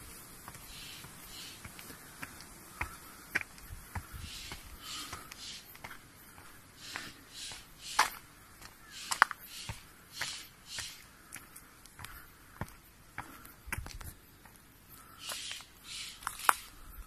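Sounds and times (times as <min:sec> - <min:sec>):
footsteps on concrete steps: 0:00.0 - 0:16.7.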